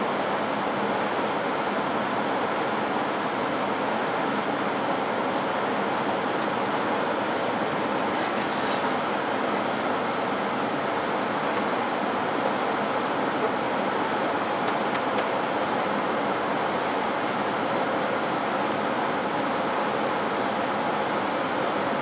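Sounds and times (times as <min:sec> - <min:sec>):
blower fan airflow rushing: 0:00.0 - 0:22.0.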